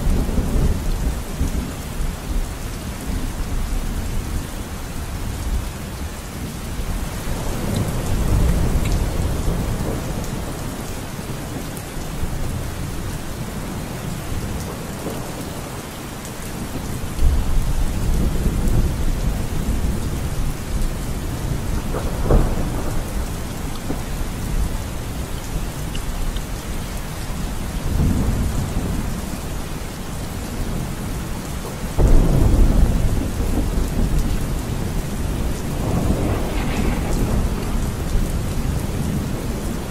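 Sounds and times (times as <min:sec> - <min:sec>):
steady rain: 0:00.0 - 0:39.9
thunder rumbling: 0:06.8 - 0:11.6, 0:16.6 - 0:39.9.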